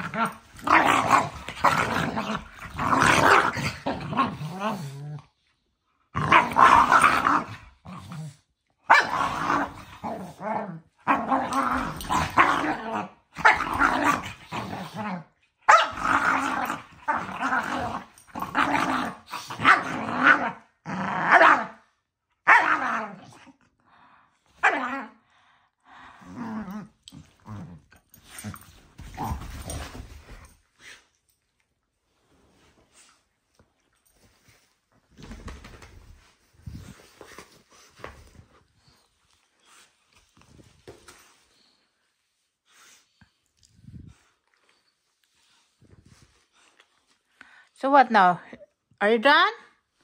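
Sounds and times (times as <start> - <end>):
dogs growling while play-fighting: 0.0 - 5.5, 6.1 - 21.8, 25.9 - 31.3.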